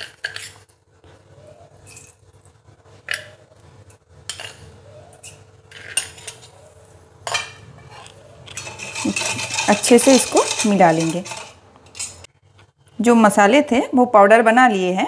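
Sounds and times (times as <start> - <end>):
spoon clinking against steel bowl: 8.5 - 12.2.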